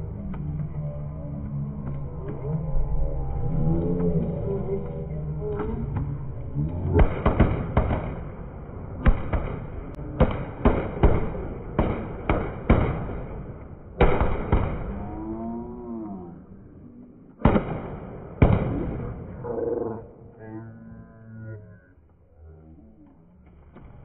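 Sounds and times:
wavering tone: 0:00.0 - 0:07.0
firecrackers banging: 0:06.8 - 0:15.3, 0:17.3 - 0:19.4.

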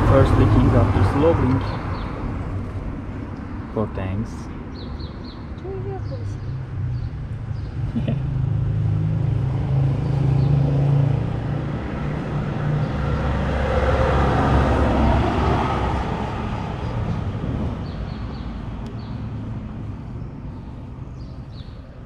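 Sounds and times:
car engine humming: 0:00.0 - 0:22.0
vehicle driving past: 0:06.3 - 0:21.3.

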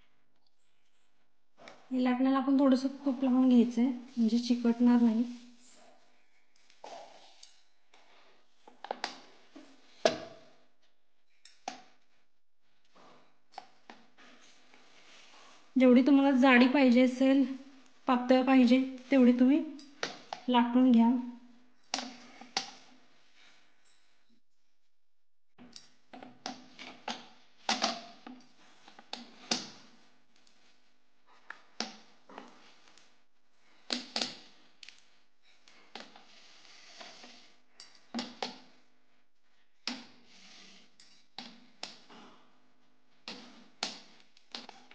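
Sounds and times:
rolling pin rolling and scraping: 0:35.5 - 0:37.6.

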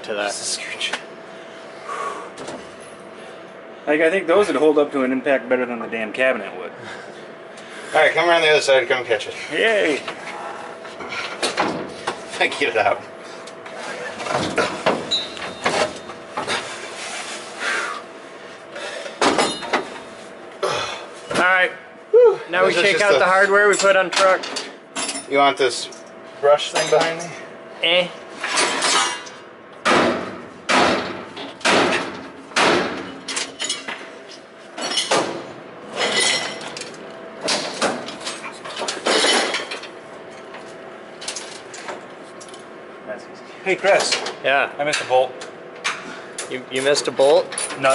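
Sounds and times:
metal parts clanking and scraping: 0:19.2 - 0:19.9, 0:23.7 - 0:26.0, 0:26.6 - 0:27.3, 0:28.4 - 0:29.4, 0:33.0 - 0:34.1, 0:34.8 - 0:35.3, 0:35.9 - 0:40.5.

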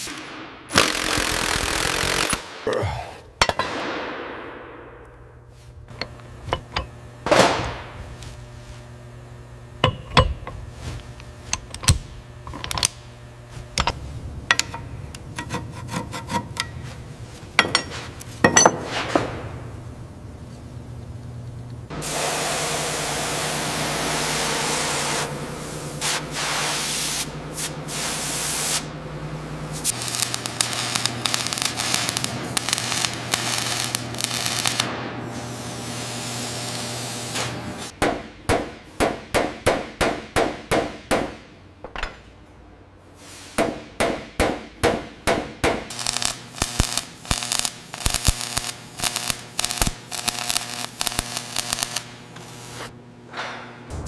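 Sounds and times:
spraying hiss: 0:22.0 - 0:28.9
hammer strikes on metal: 0:38.0 - 0:42.2, 0:43.6 - 0:45.9.

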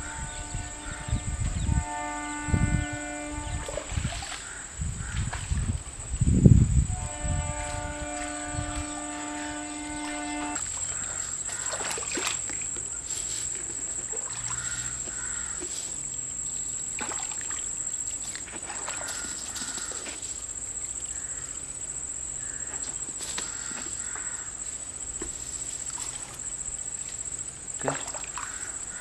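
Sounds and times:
high-pitched insect drone: 0:00.0 - 0:29.0
water splashes and knocks: 0:03.6 - 0:04.5, 0:05.1 - 0:05.8, 0:10.0 - 0:20.5, 0:22.6 - 0:24.3, 0:25.1 - 0:27.2, 0:27.8 - 0:28.8.

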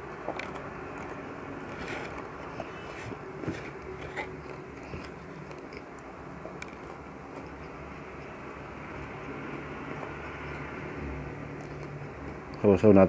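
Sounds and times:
chewing crunchy fried fish: 0:00.0 - 0:12.7.

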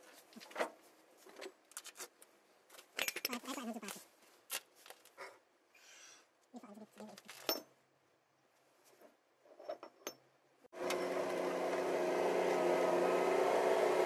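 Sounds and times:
engine drone: 0:10.8 - 0:14.0.

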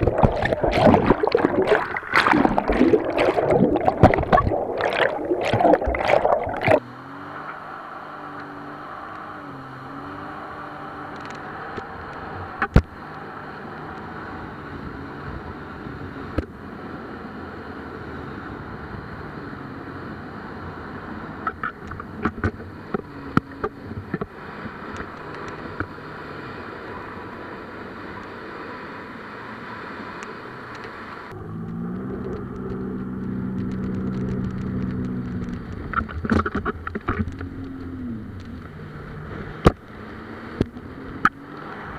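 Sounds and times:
wind and water rushing: 0:00.0 - 0:07.8
jet ski engine running: 0:06.0 - 0:41.9.

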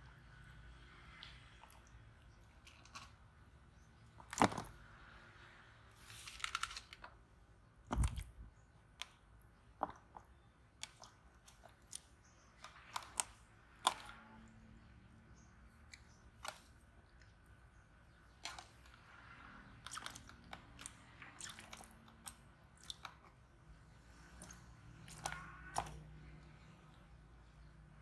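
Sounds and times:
plastic tubs clicking and knocking: 0:04.2 - 0:04.8.

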